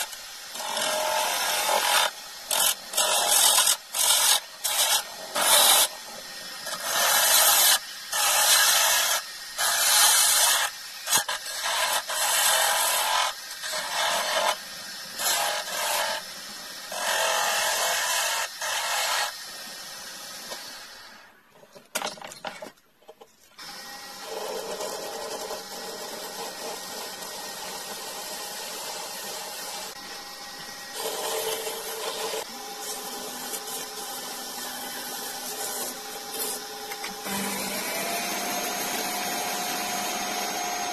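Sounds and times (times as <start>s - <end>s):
chisel scraping spinning wood: 0.0s - 16.2s, 23.6s - 40.9s
lathe running: 28.9s - 40.9s.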